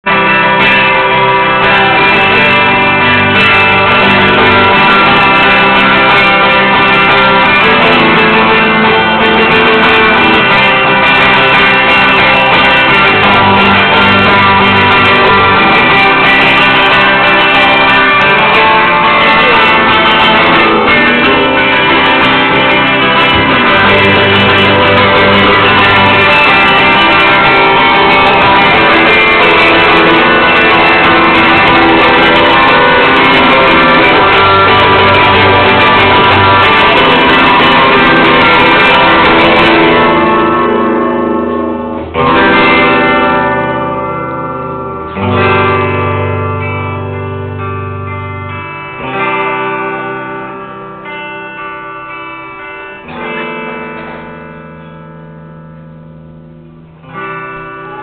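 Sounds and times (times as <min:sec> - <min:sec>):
guitar: 0:00.0 - 0:58.0
live band playing loud music: 0:00.0 - 0:58.0.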